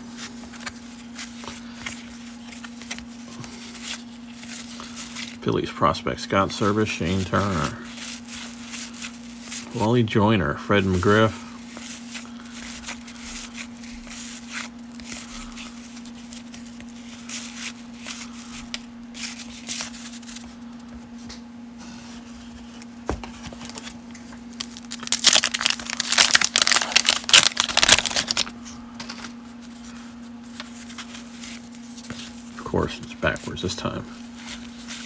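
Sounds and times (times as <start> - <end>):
steady low hum: 0.0 - 35.0
trading cards rustling: 0.1 - 10.0, 10.7 - 20.9, 22.4 - 35.0
wax-paper wrapper tearing and crinkling: 6.5 - 10.0, 10.8 - 20.5, 23.8 - 28.6.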